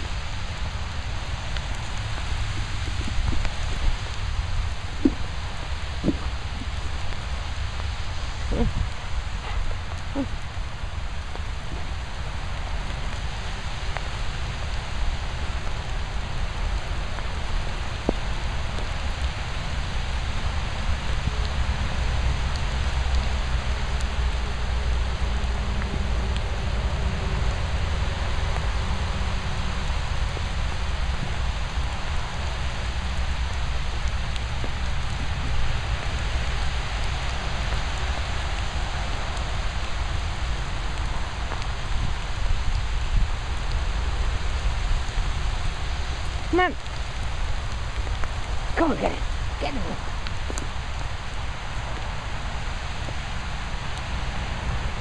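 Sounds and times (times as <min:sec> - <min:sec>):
steady rain falling: 0:00.0 - 0:55.0
low rumble: 0:00.6 - 0:12.2.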